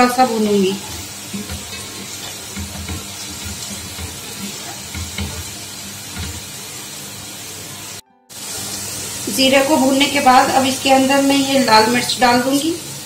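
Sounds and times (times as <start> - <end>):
food sizzling in hot oil: 0.0 - 13.0
wooden spoon scraping a pot: 0.8 - 6.5.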